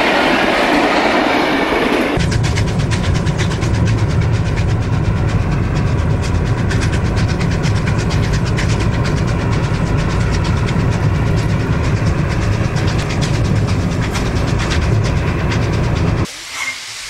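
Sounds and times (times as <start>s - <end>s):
steam locomotive exhaust beats: 0.0s - 17.0s
low road rumble: 2.2s - 16.3s.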